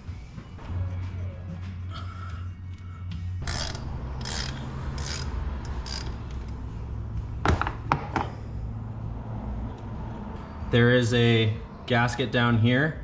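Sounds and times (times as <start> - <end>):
hand ratchet clicking: 3.4 - 6.6.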